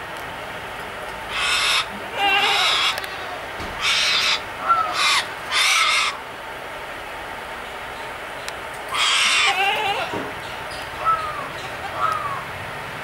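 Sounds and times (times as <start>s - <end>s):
bird calling harshly: 1.3s - 6.2s, 8.9s - 12.5s.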